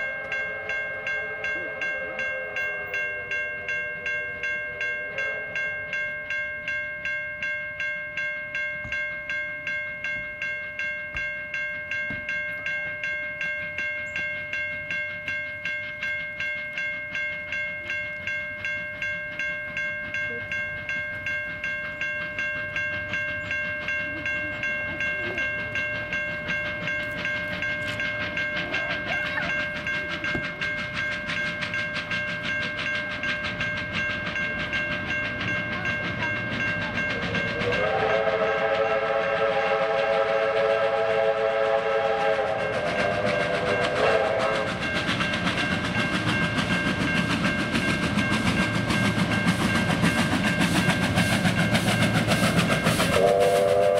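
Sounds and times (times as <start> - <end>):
steady high ringing tone: 0.0 - 38.7
steam locomotive exhaust beats: 0.0 - 53.9.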